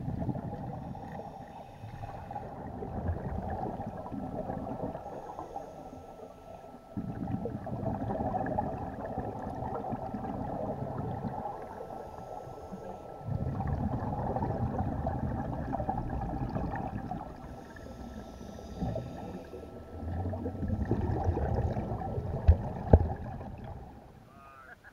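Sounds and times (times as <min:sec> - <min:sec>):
exhaled bubbles rumbling: 0:00.0 - 0:05.6, 0:06.2 - 0:24.2
regulator hissing inhale: 0:00.7 - 0:02.7, 0:04.9 - 0:06.8, 0:11.5 - 0:13.3, 0:17.3 - 0:20.1.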